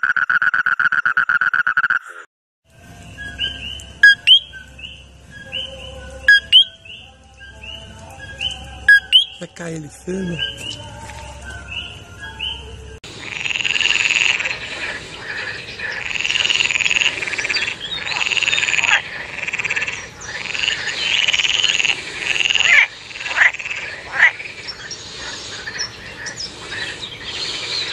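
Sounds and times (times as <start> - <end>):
frog croaking: 0.0 - 2.2, 3.4 - 5.0, 5.6 - 6.8, 13.0 - 27.9
short sharp frog calls: 13.2 - 27.9.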